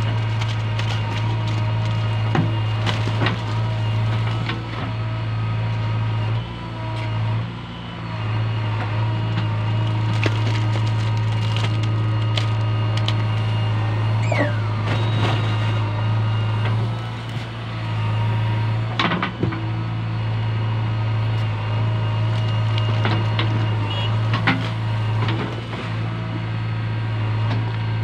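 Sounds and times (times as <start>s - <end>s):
diesel engine under load: 0.0s - 28.0s
falling squeal: 14.1s - 15.7s.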